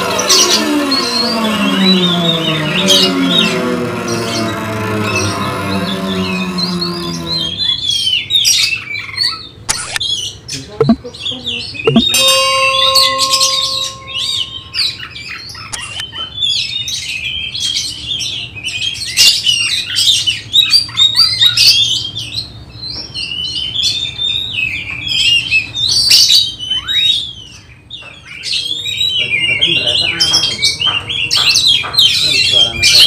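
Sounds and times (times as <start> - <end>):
electronic chime: 11.9 - 14.8, 15.8 - 16.0
birds singing chirps and whistles: 15.4 - 33.0.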